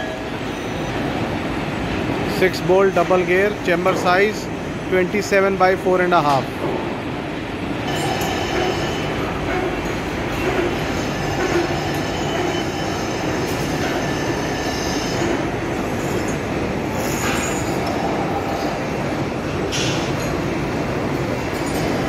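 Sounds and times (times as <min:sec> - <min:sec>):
high steady whines: 0:06.9 - 0:22.0.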